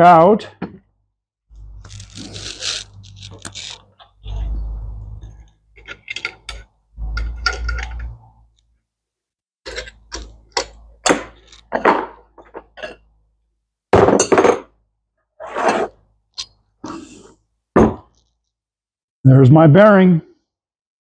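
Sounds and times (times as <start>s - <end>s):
metal parts clinking and clunking: 5.8s - 8.2s.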